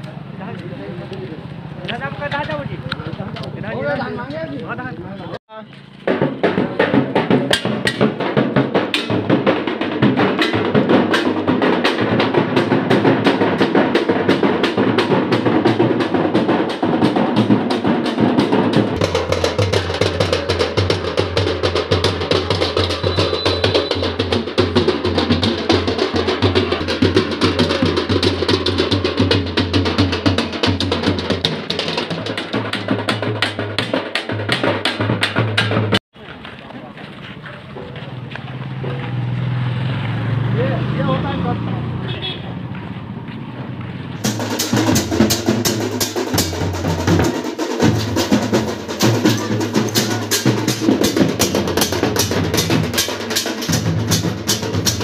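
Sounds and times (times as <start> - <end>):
fast drumming with sticks: 6.0 - 36.0, 44.2 - 55.0.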